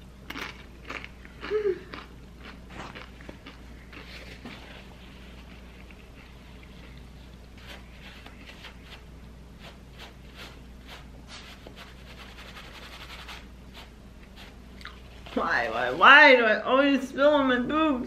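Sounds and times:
paper napkin rubbing on sweater: 7.6s - 16.2s.

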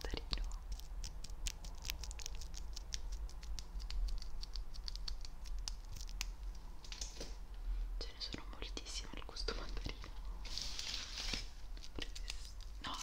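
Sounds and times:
plastic bag rustle: 10.4s - 12.5s
wrapper crackling: 10.5s - 13.0s.

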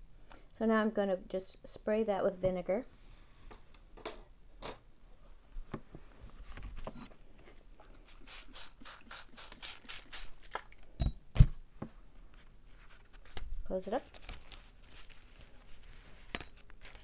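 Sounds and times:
spray bottle squirting: 8.0s - 10.6s.

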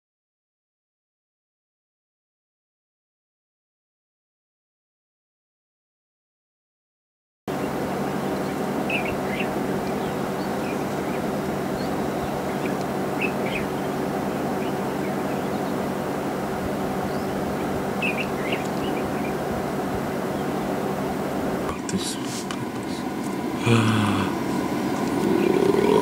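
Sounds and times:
high bird calls: 7.5s - 21.1s, 24.3s - 26.0s.

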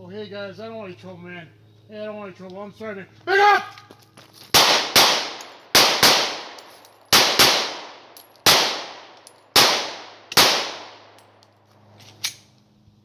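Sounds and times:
pistol shots with echo: 4.6s - 11.1s.

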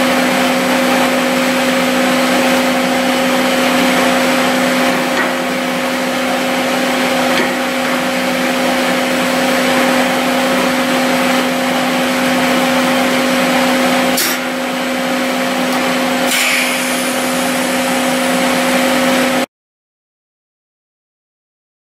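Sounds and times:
air compressor running: 0.0s - 19.5s
short hiss of air: 16.3s - 17.6s.

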